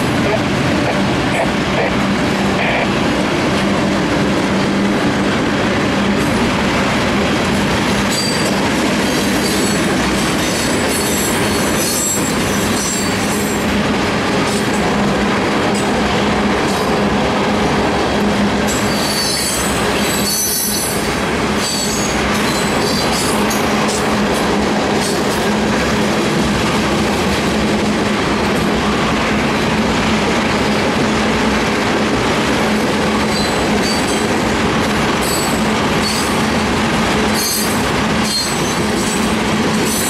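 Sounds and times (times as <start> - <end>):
freight train wheels rumbling: 0.0 - 40.0
high wheel squeals: 18.8 - 21.0, 37.4 - 39.3.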